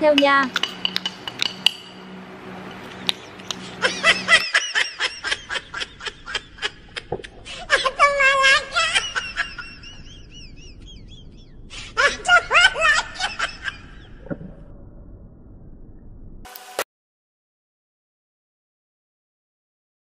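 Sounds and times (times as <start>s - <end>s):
person laughing: 3.3s - 14.2s
high drawn-out laugh: 3.4s - 14.2s.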